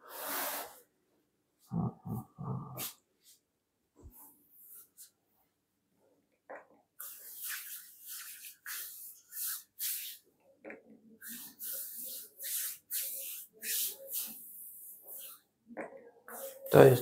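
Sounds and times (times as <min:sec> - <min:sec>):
palms rubbing bare skin: 0:07.0 - 0:10.3, 0:11.2 - 0:15.5.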